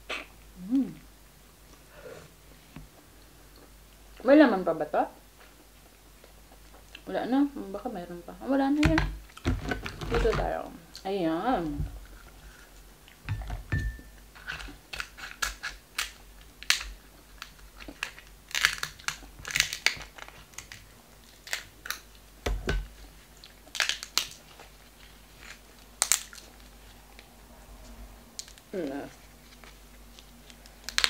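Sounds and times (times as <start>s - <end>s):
crab shells cracking: 14.4s - 24.7s, 25.4s - 26.7s, 30.2s - 31.0s.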